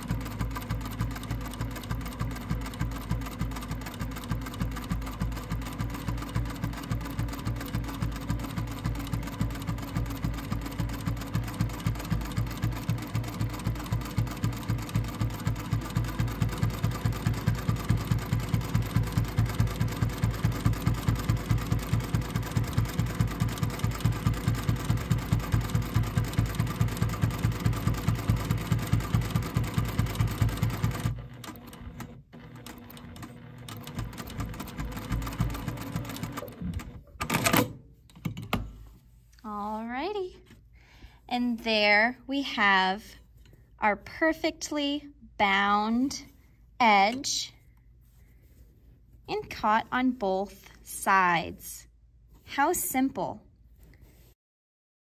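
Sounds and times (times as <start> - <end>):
sewing machine stitching: 0.0 - 38.6.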